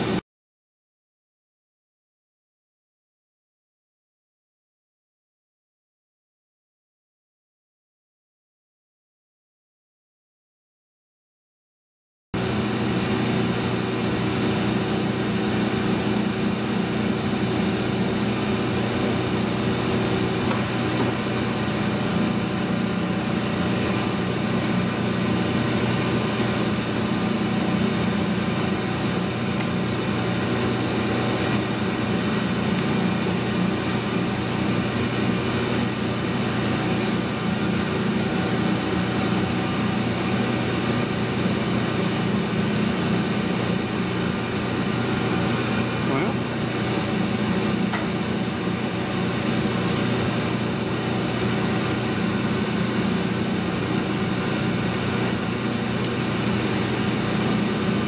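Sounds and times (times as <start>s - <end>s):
electric motor hum: 12.4s - 58.0s
lathe running: 12.4s - 58.0s.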